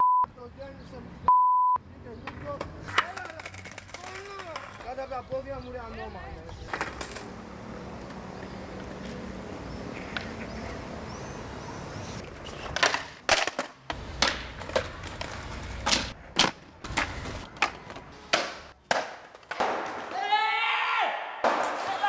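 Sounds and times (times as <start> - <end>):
skateboard wheels rolling: 2.4 - 5.5, 6.4 - 20.3
skateboard pops and landings: 12.7 - 20.2.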